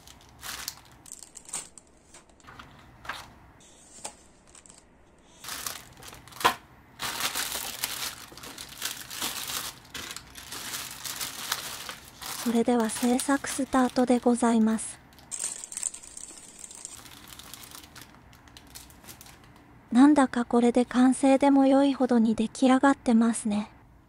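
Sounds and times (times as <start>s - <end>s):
plastic bags crinkling: 0.0s - 3.3s, 4.4s - 19.6s.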